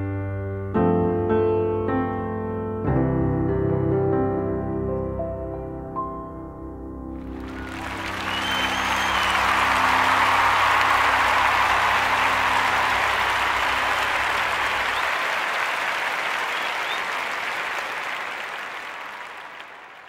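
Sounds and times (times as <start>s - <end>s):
audience applause: 7.2s - 20.0s.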